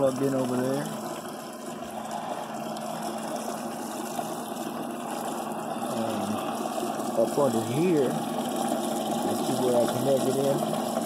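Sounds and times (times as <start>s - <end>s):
pump humming: 0.0s - 11.0s
rush of liquid: 0.0s - 11.0s.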